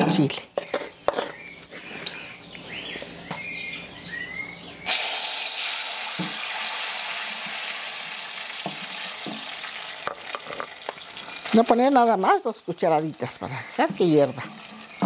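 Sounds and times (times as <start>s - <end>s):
salsa sizzling in hot lard: 4.8s - 15.0s.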